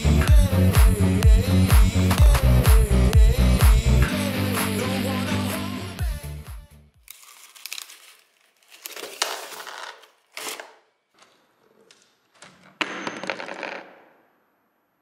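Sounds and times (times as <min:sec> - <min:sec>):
coin dropping and rattling: 0:12.8 - 0:14.0.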